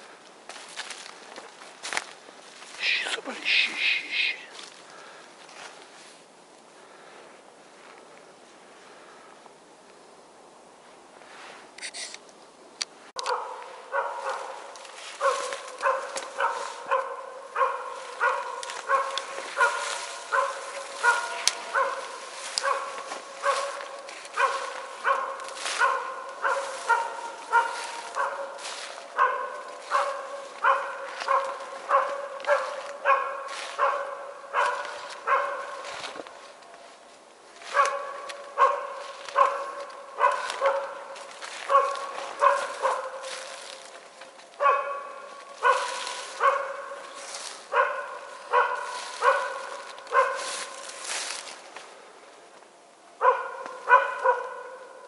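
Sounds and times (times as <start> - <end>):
dog barking: 13.2 - 36.6, 37.6 - 51.4, 53.2 - 55.0.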